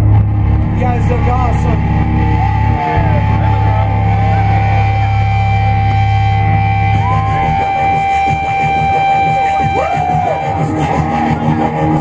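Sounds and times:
steady high note: 0.0 - 11.9
distorted low drone: 0.0 - 12.0
live rock music: 0.0 - 12.0.

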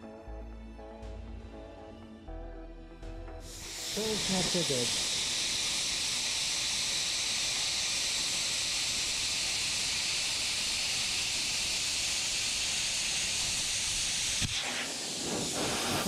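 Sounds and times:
plasma cutter hissing: 3.4 - 16.0.

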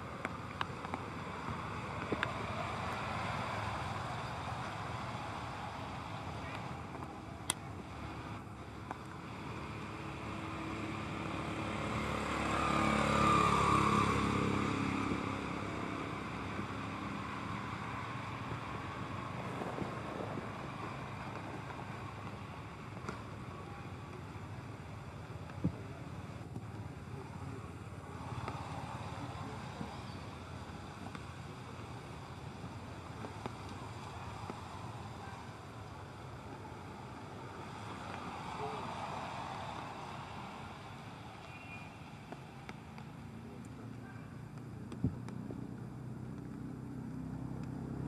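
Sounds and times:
outdoor background noise: 0.0 - 48.0.

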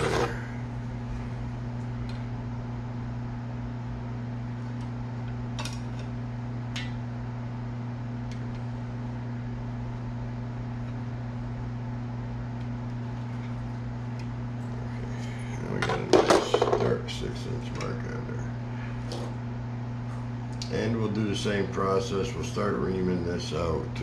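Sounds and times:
small motor humming: 0.0 - 0.6.

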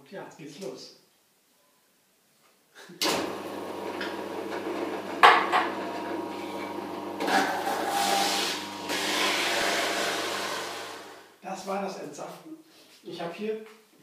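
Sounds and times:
juicer motor humming: 3.0 - 11.3
produce crunching and grinding: 3.4 - 11.1.

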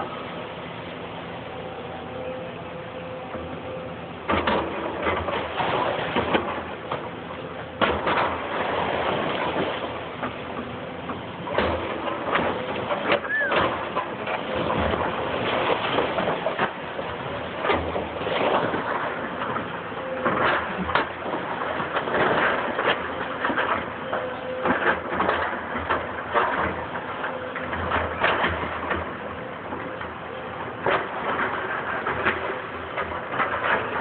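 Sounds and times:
excavator rumbling and crunching: 0.0 - 34.0
short squeak: 13.2 - 13.6.

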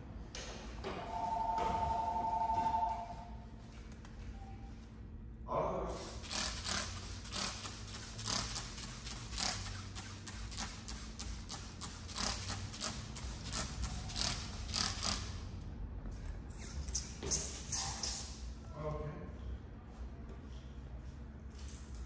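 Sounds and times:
spray bottle squirting: 6.0 - 15.4, 16.5 - 18.4.

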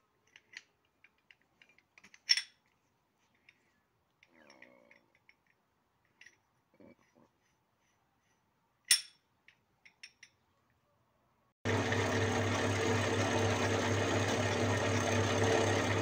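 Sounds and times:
metal lathe running: 11.7 - 16.0.

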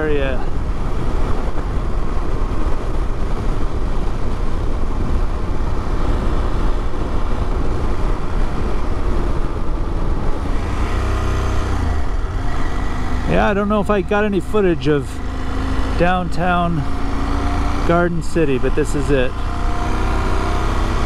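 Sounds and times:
wind noise on microphone: 0.0 - 13.6
motorcycle engine running: 10.0 - 21.0.

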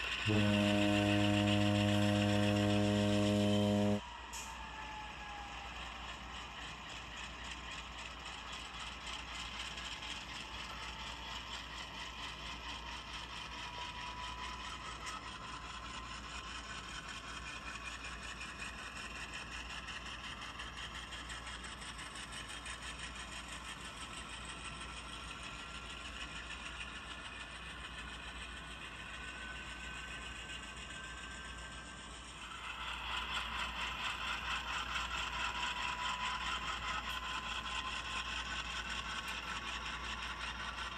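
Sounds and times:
model train wheels rattling on track: 0.0 - 4.0, 6.3 - 40.9
faint rising whines: 0.3 - 4.0.

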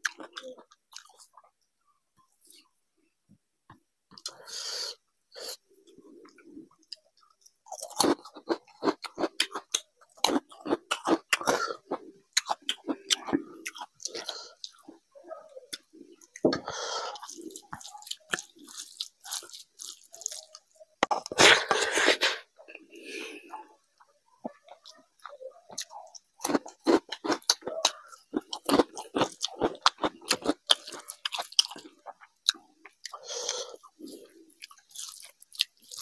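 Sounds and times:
man chewing and mouth smacks: 5.9 - 15.0, 15.7 - 21.4, 24.0 - 36.0.

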